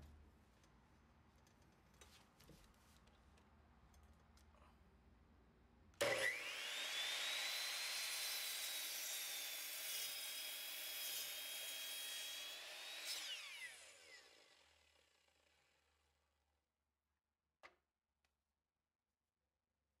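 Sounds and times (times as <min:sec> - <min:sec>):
power tool motor whining: 0:06.0 - 0:08.2.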